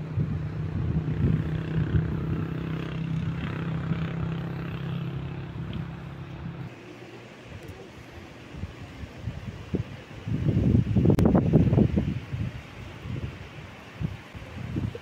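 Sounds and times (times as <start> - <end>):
engine humming: 0.0 - 9.2.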